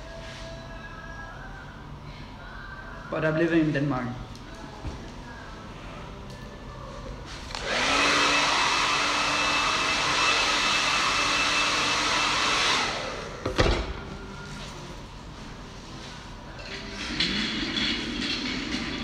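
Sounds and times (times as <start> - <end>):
hair dryer running: 7.5 - 14.0.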